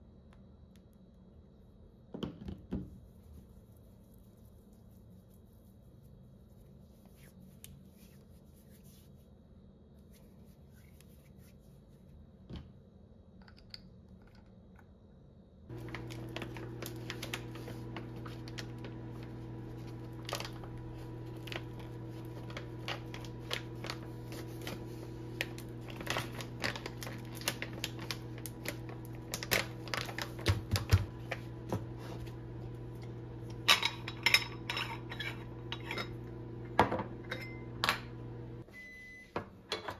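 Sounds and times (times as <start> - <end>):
faint handling sounds: 3.0 - 12.5, 15.7 - 30.5
foil bag crinkling: 15.7 - 32.9.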